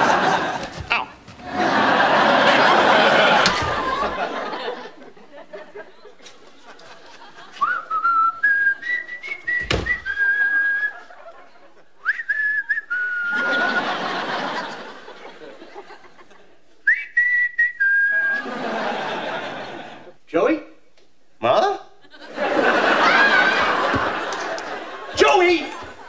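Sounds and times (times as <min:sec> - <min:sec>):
audience laughter: 0:00.0 - 0:16.8, 0:18.1 - 0:20.2, 0:22.0 - 0:26.0
man whistling a tune: 0:07.6 - 0:11.1, 0:12.0 - 0:13.5, 0:16.9 - 0:18.4.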